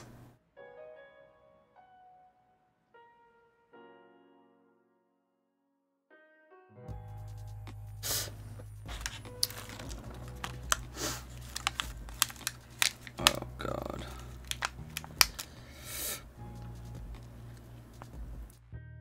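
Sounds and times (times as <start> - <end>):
plastic packet crinkling and tearing: 8.9 - 15.7.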